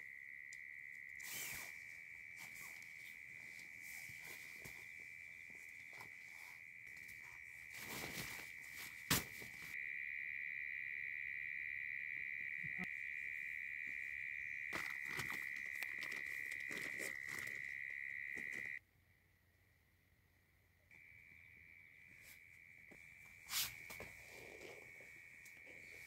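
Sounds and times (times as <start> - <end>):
insects trilling: 0.0 - 18.8.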